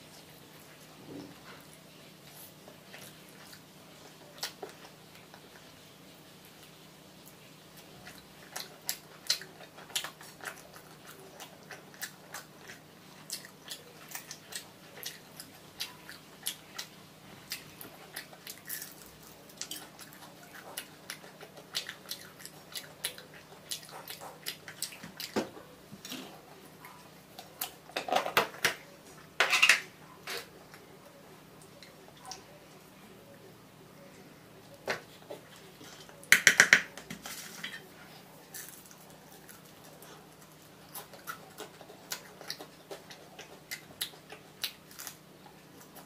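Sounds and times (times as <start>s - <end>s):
person chewing fried fish: 6.4s - 28.0s, 38.4s - 46.0s.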